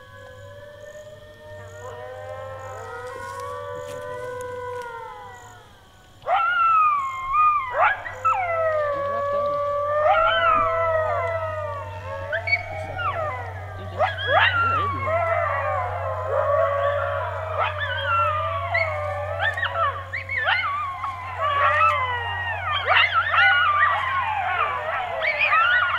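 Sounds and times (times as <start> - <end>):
coyotes howling and yipping: 0.0 - 25.9
steady low hum: 0.0 - 25.9.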